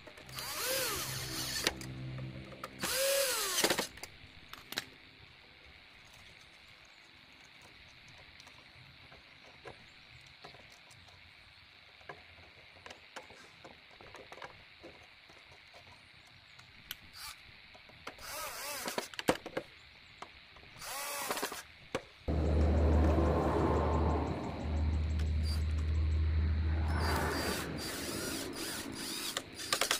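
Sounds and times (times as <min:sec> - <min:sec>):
loud steady low hum: 0:22.3 - 0:29.6
loud noisy bursts: 0:22.3 - 0:29.9
small metal parts clicking: 0:28.2 - 0:29.9.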